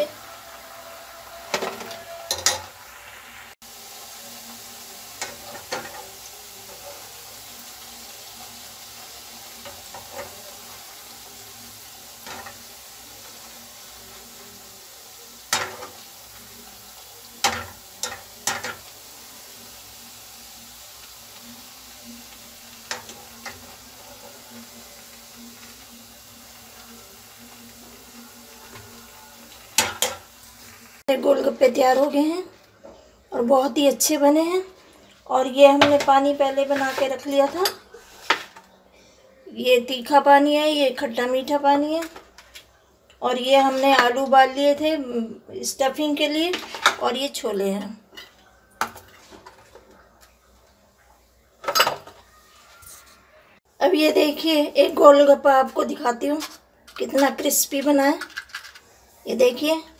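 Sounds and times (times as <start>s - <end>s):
food deep-frying in oil: 0.0s - 32.5s, 33.4s - 38.4s.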